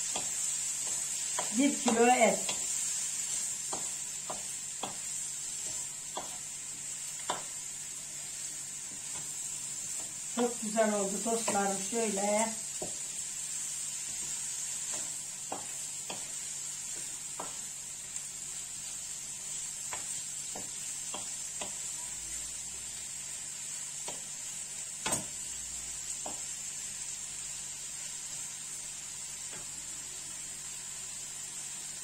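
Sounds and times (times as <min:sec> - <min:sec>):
wooden spoon knocking and scraping pan: 0:00.0 - 0:06.5, 0:07.2 - 0:07.6, 0:08.9 - 0:13.2, 0:14.0 - 0:17.7, 0:19.8 - 0:21.9, 0:26.2 - 0:26.5
meat sizzling in a frying pan: 0:00.0 - 0:32.0.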